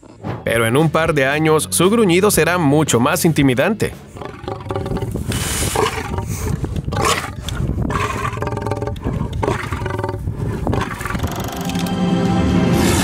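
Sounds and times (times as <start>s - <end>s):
lion roaring: 0.0s - 0.5s, 4.1s - 11.9s.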